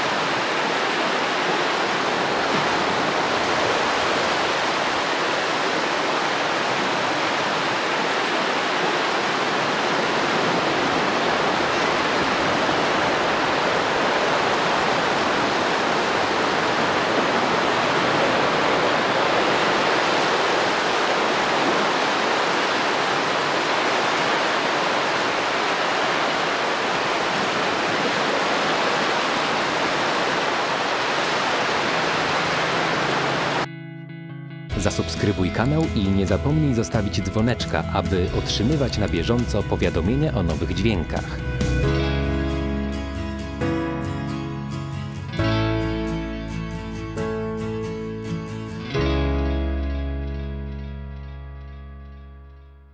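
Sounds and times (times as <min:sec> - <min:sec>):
small waves breaking on beach: 0:00.0 - 0:33.7.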